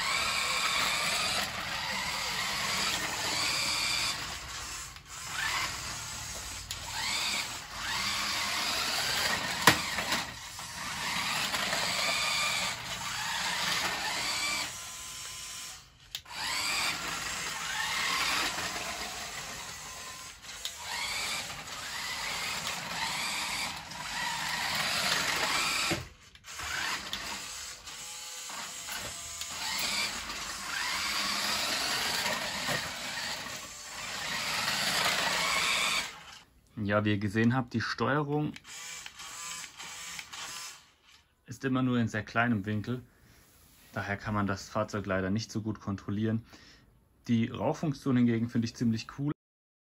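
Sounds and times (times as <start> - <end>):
toy truck electric motor whining: 0.0 - 36.5, 38.6 - 41.3.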